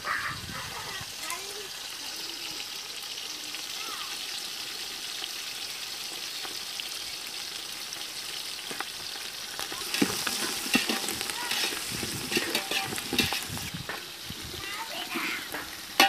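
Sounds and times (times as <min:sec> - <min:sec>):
vegetables sizzling in a pot: 0:00.0 - 0:16.0
metal ladle knocking on pot: 0:12.3 - 0:13.5.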